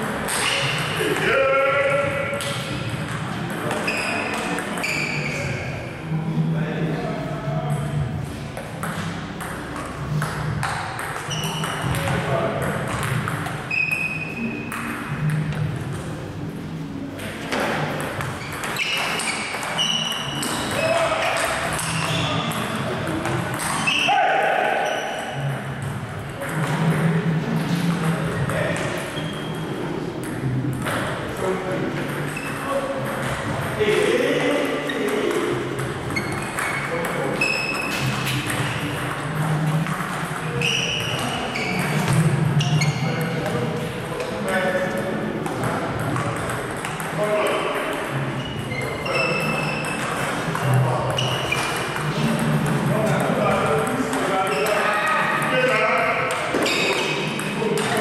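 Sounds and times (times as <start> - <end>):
shoes squeaking on floor: 0.2 - 1.0, 3.5 - 5.9, 8.2 - 12.1, 13.1 - 15.4, 17.5 - 25.9, 27.6 - 29.9, 32.2 - 33.6, 34.8 - 44.3, 47.4 - 52.5, 54.0 - 55.1, 56.3 - 57.4.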